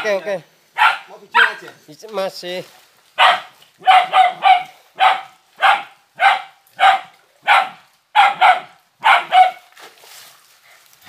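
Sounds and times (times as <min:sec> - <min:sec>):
dog barking: 0:00.8 - 0:01.6, 0:03.2 - 0:09.6.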